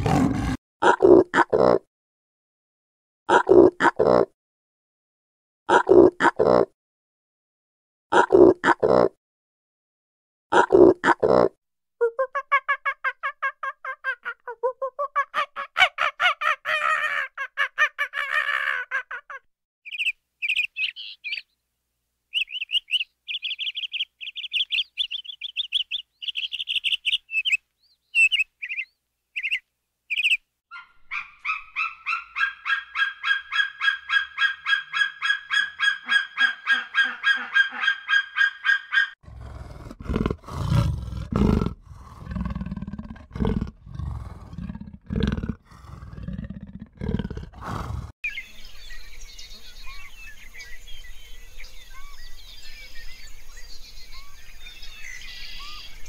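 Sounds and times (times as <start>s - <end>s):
high bird chirps: 19.9s - 21.6s, 22.3s - 39.2s, 48.2s - 56.0s
fast pulsed animal calls: 30.7s - 40.9s
loud low animal calls: 30.7s - 48.1s.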